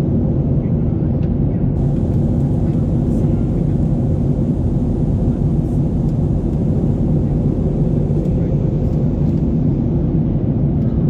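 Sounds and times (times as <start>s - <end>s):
jet engines rumbling: 1.6s - 11.0s
air rushing past fuselage: 1.8s - 10.6s.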